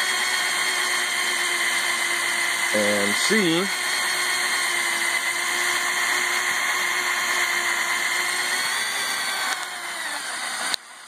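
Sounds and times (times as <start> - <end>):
toy motor whining: 0.0 - 11.0
click: 9.5 - 9.7.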